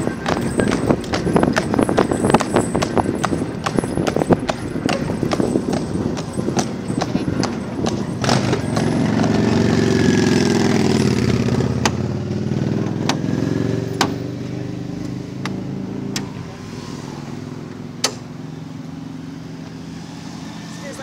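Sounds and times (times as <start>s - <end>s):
horse hooves clopping: 0.0s - 13.2s
vehicle engine running: 0.0s - 21.0s.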